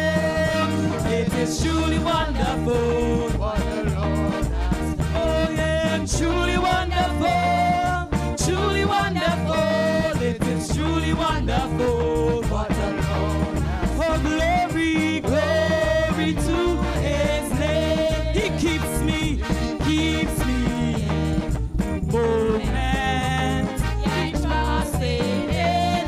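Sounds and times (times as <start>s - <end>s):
person singing: 0.0s - 21.4s, 22.0s - 26.0s
gospel band with drums and bass: 0.0s - 26.0s.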